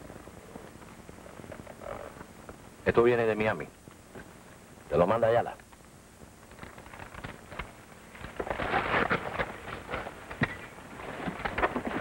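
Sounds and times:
crackly handling rustle: 5.6s - 12.0s.

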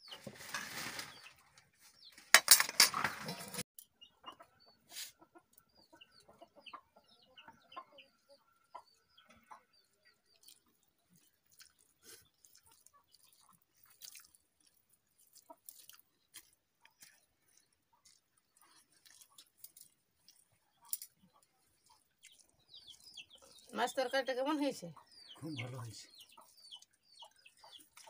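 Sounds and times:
faint chewing: 10.1s - 23.7s.

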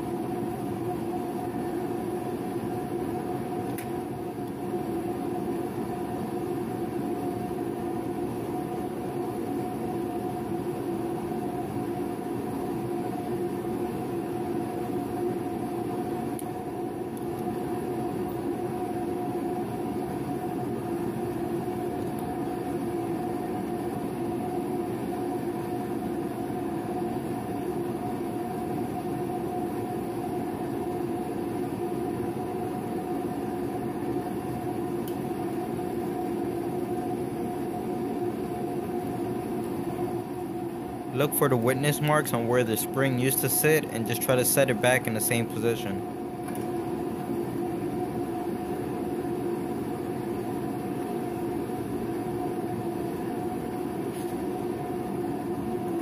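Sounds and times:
steady mechanical drone: 0.0s - 56.0s.

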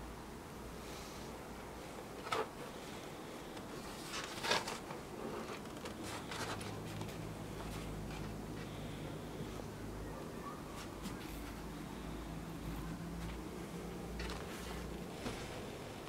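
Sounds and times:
handling rustles and scrapes: 1.8s - 8.8s, 12.7s - 16.0s.

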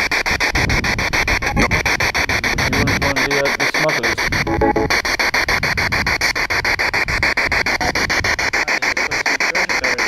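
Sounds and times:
radio static bursts: 1.3s - 5.4s.

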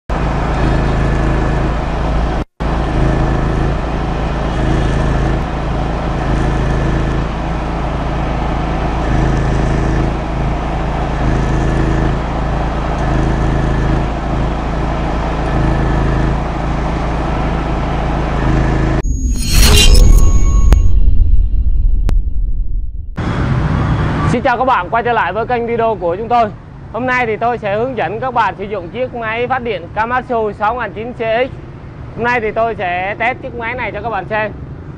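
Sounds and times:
generator engine drone: 0.1s - 24.2s.

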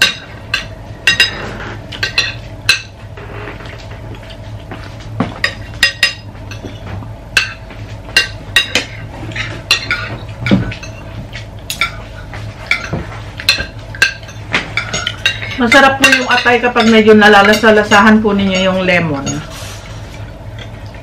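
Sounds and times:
cutlery clinking on plates: 0.0s - 3.0s, 5.2s - 17.7s
steady low hum: 0.0s - 21.0s.

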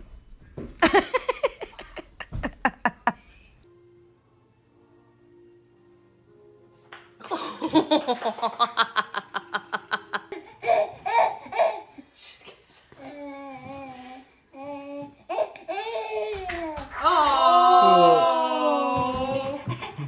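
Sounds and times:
baby laughing: 0.8s - 3.2s, 7.3s - 12.1s.

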